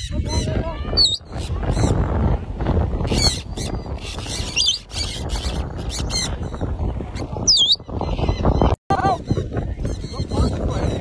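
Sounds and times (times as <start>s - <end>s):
shrill gliding whistled calls: 1.0s - 1.2s, 3.2s - 6.1s, 7.5s - 7.8s.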